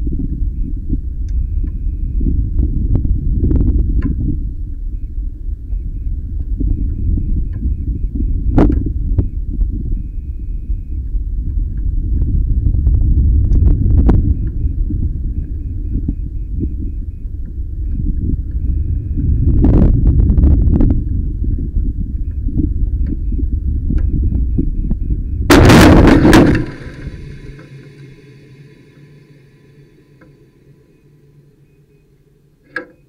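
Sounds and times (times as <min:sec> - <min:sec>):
wind buffeting microphone: 0:00.0 - 0:32.4
faint high beeping: 0:26.6 - 0:33.0.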